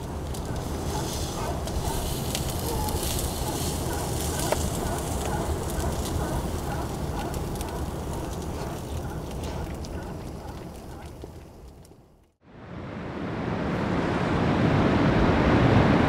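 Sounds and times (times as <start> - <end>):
wood fire crackling: 0.0 - 12.4
low rumble: 12.5 - 16.0.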